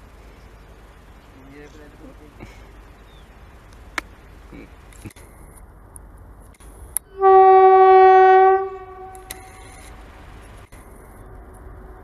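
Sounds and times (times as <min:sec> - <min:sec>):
train rumbling: 0:00.0 - 0:12.0
train horn blast: 0:07.1 - 0:09.6.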